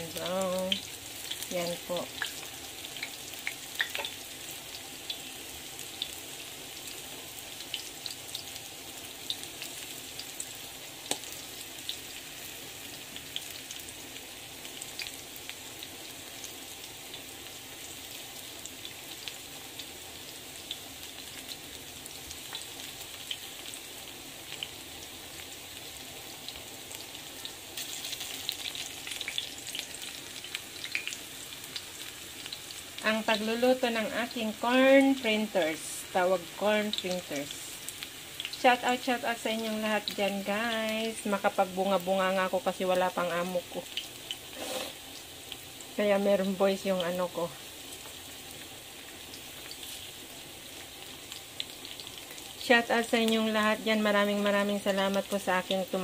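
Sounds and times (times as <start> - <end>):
fritters sizzling in hot oil: 0.0 - 56.0.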